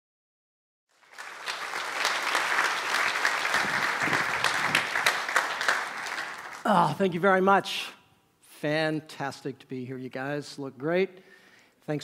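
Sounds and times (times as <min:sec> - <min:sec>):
crowd clapping: 0:00.9 - 0:06.9.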